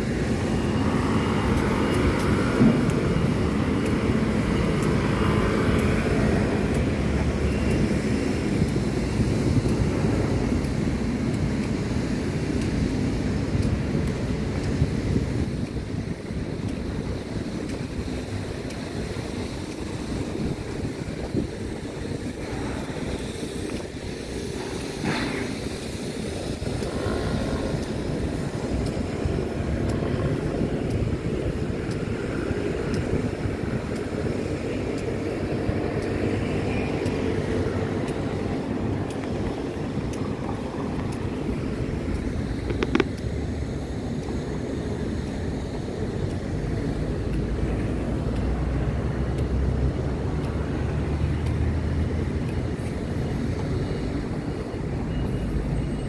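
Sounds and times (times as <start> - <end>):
city traffic rumble: 0.0 - 56.0
wind: 0.0 - 56.0
sharp click: 31.9 - 44.4.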